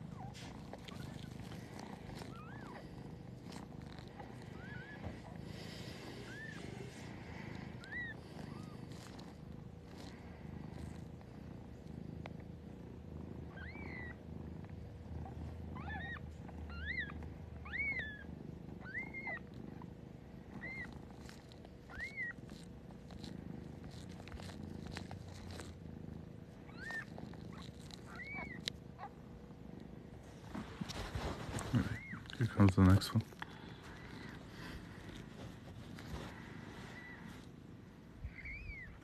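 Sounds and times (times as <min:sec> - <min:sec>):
kittens squeaking: 0:00.0 - 0:10.1, 0:13.4 - 0:14.2, 0:15.2 - 0:19.9, 0:20.5 - 0:25.8, 0:26.6 - 0:29.2, 0:31.5 - 0:37.5, 0:38.2 - 0:39.0
cat purring: 0:00.0 - 0:39.0.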